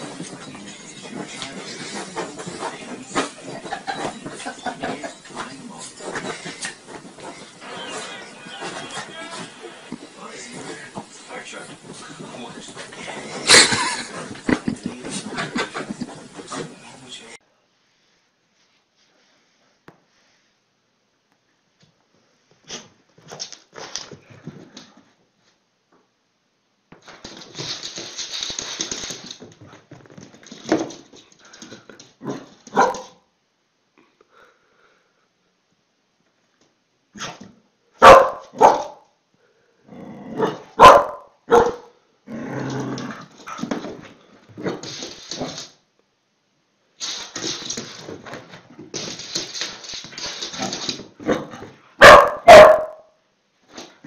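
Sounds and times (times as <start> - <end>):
dog scuffling: 0.0 - 17.4, 26.9 - 33.2, 42.5 - 45.8, 47.0 - 53.0
dog barking loudly: 32.7 - 33.2, 38.0 - 39.0, 40.4 - 41.9, 52.0 - 53.0.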